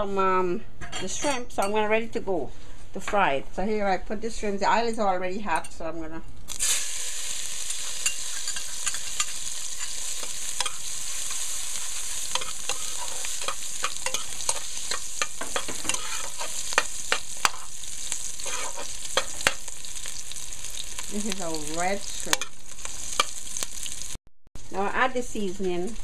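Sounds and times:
shrimp sizzling in hot oil: 6.5s - 26.0s.

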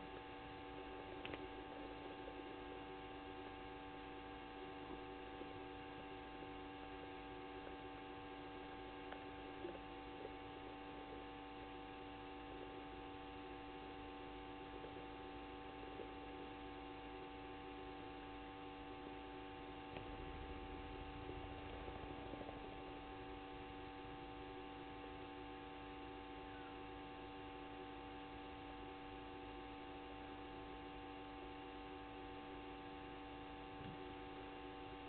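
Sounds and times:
faint electrical hum: 0.0s - 35.0s
faint click: 1.2s - 1.5s.

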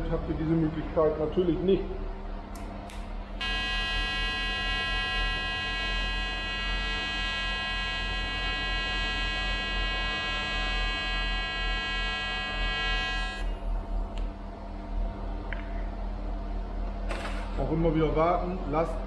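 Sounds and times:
welding arc buzzing: 2.9s - 14.0s.

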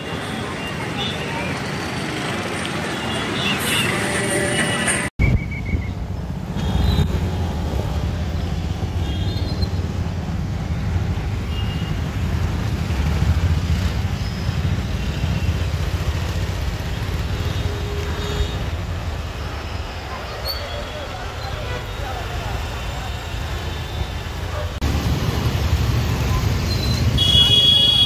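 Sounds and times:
motorcycles passing: 0.0s - 5.1s, 6.2s - 28.0s
cars passing on wet road: 0.8s - 4.9s, 22.2s - 28.0s.

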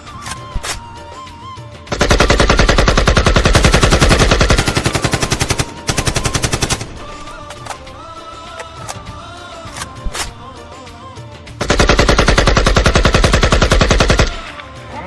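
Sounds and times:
background music: 0.0s - 15.0s
rapid machine-gun fire: 1.9s - 7.0s, 11.6s - 14.4s.

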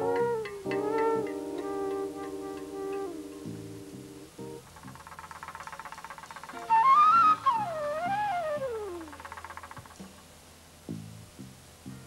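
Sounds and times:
flute note sliding down: 0.0s - 4.1s, 6.6s - 9.1s
low bass accompaniment: 0.0s - 4.8s, 10.8s - 12.0s.

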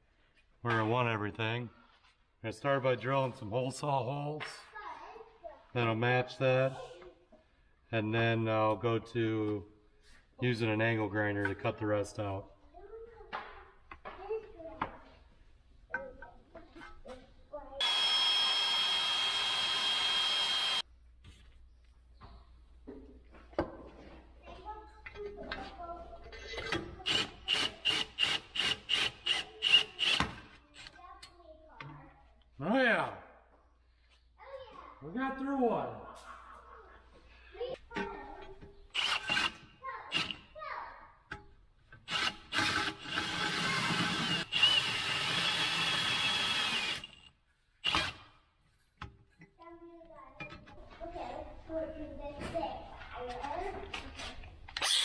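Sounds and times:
drill whirring with ringing tone: 17.8s - 20.8s, 42.1s - 48.1s
faint handling sounds: 20.9s - 26.5s.

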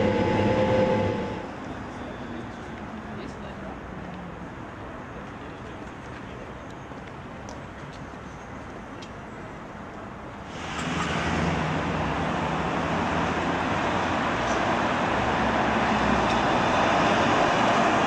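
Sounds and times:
tram approaching: 0.0s - 6.3s, 10.4s - 18.0s
steady street traffic: 0.0s - 18.0s.

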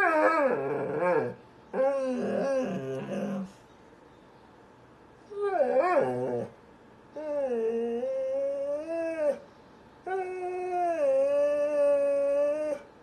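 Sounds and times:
dog howling: 0.0s - 3.5s, 5.3s - 6.5s, 7.2s - 9.4s, 10.1s - 12.8s.

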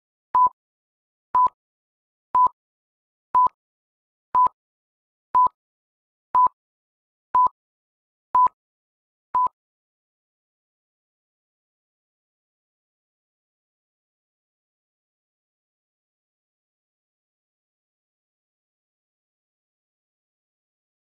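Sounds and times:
countdown beeps: 0.4s - 0.6s, 1.4s - 1.6s, 2.4s - 2.6s, 3.4s - 3.6s, 4.4s - 4.6s, 8.4s - 8.6s.

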